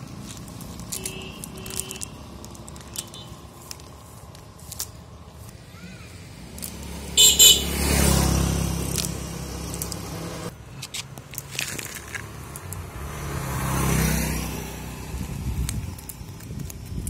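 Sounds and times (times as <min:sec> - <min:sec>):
chain rustling and clinking on asphalt: 0:00.0 - 0:05.7, 0:06.3 - 0:17.0
vehicles passing: 0:00.0 - 0:17.0.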